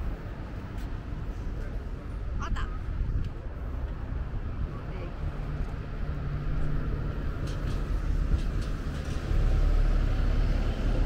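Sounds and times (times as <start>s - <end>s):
moving vehicle rumble: 0.0s - 11.0s.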